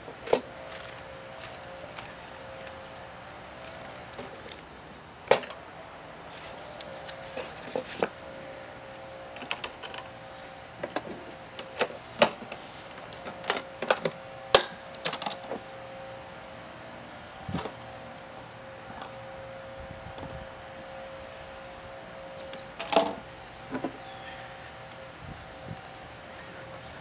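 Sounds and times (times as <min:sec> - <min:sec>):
metal lid clicks and clanks: 0:22.8 - 0:23.2.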